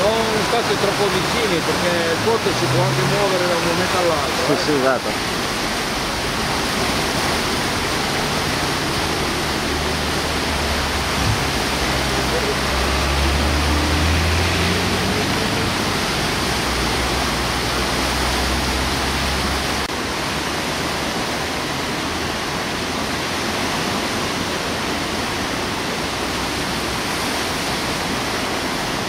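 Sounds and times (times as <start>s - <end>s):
river in flood rushing: 0.0s - 29.0s
deep low rumble: 1.3s - 3.8s.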